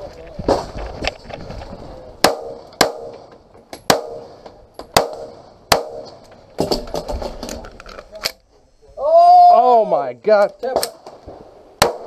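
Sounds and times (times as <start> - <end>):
pistol shots: 2.2 - 3.3, 3.9 - 6.2, 11.8 - 12.0.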